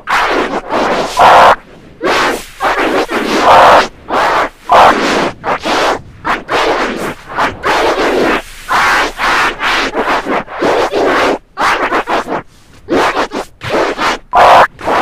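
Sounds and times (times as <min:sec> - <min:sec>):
vinyl record scratching: 0:00.0 - 0:15.0.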